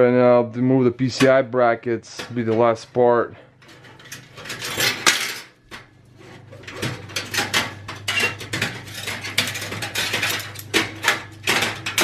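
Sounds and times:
metal brackets clinking and rattling: 3.6 - 5.7, 6.5 - 12.0.

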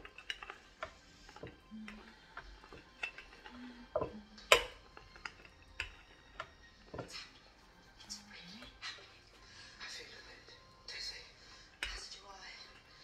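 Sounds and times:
rolling pin clicking and knocking: 0.0 - 7.1.

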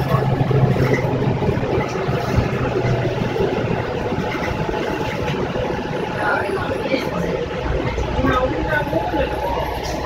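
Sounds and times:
bus engine humming: 0.0 - 10.0
road noise: 0.0 - 10.0.

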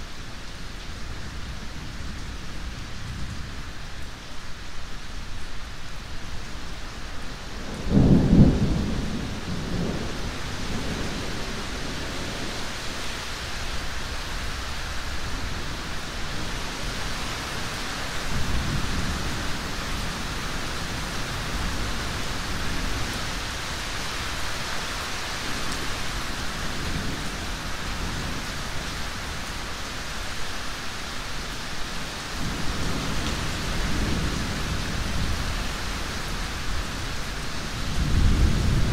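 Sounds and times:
steady rain: 0.0 - 38.9
thunder rumbling: 7.7 - 12.6, 37.7 - 38.9.

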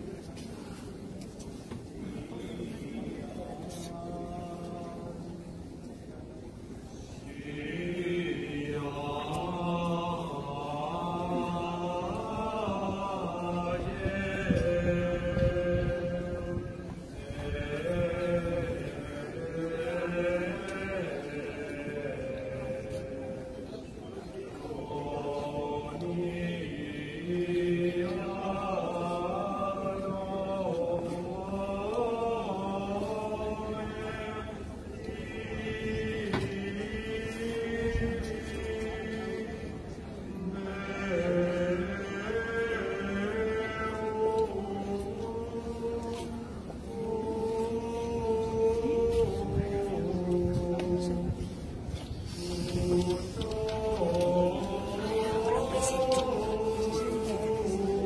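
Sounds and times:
slow chant in held notes: 1.6 - 58.0.

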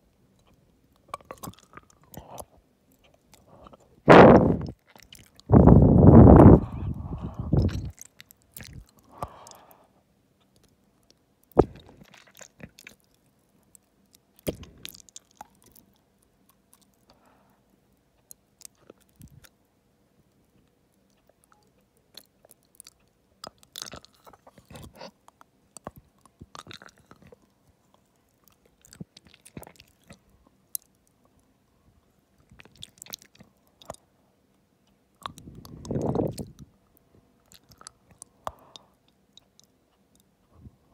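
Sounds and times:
swallowing gulps: 5.4 - 8.0, 11.6 - 12.8, 35.2 - 36.7
wet mouth clicks: 35.2 - 36.7.

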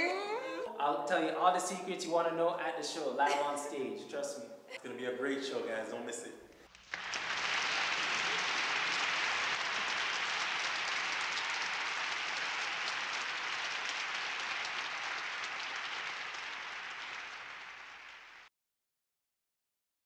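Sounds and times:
audience applause: 6.7 - 18.5.

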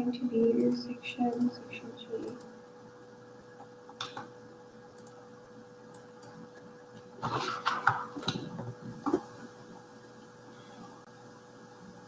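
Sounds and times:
faint electrical hum: 0.0 - 12.0
keyboard and mouse clatter: 7.2 - 9.3.

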